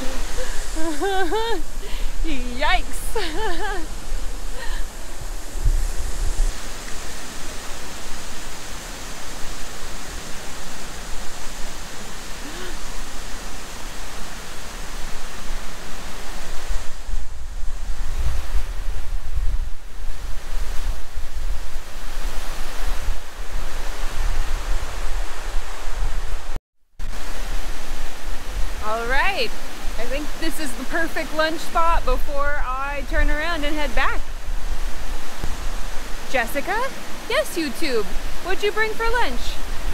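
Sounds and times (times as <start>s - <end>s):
waterfall rushing: 0.0s - 39.9s
wind buffeting microphone: 0.0s - 39.9s.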